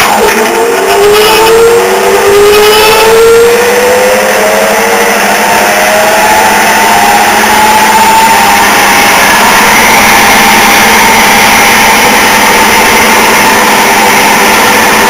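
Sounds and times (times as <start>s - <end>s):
lathe mechanical whine: 0.0s - 15.0s
steady motor hum: 0.0s - 15.0s.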